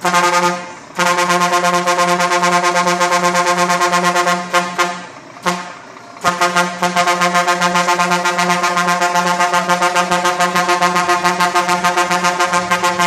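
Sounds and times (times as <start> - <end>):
truck horn pulsing: 0.0 - 13.0.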